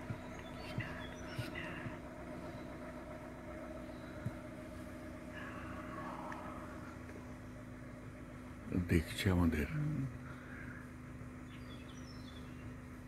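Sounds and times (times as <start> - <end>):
jeep engine humming: 0.0 - 13.0.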